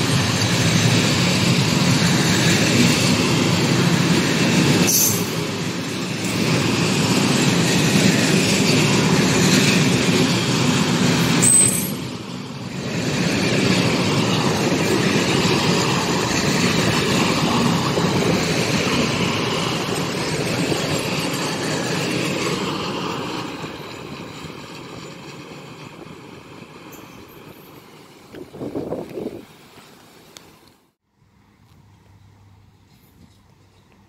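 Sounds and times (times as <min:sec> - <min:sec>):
train wheels rumbling on rails: 0:00.0 - 0:30.8
high wheel squeal: 0:04.4 - 0:12.8.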